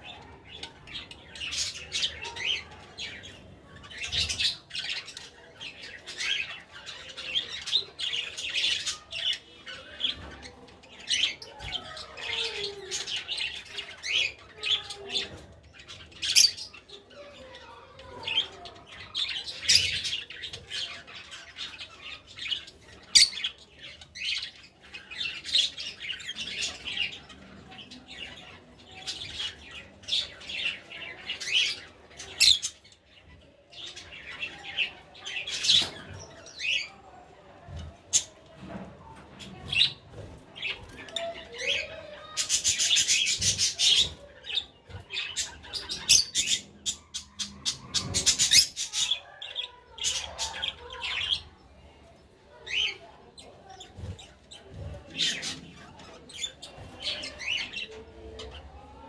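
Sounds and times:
lovebirds chirping and squawking: 0.0s - 59.0s.

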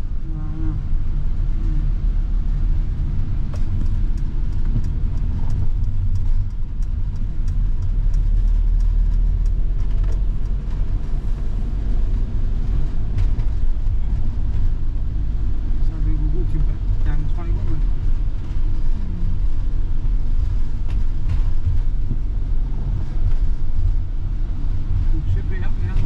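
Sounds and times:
engine and road rumble: 0.0s - 26.0s
regular light ticks: 3.4s - 11.4s.

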